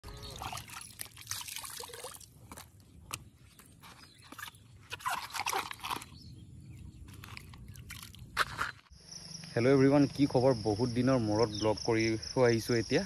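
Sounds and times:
water splashing and dripping: 0:00.0 - 0:02.7.

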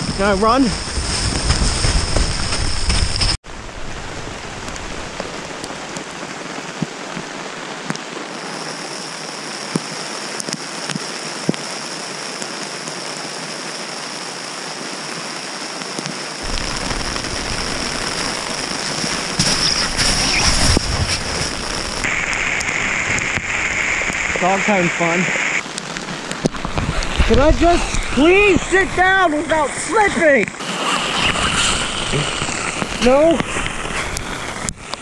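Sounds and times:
hailstones ticking: 0:00.0 - 0:03.4, 0:16.4 - 0:35.0
rain and hail falling: 0:00.0 - 0:35.0.

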